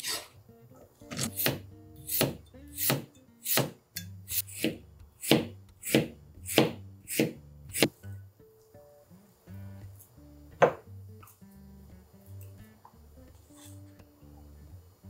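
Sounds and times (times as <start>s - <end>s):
knife slicing cucumber on plastic board: 1.0s - 7.9s.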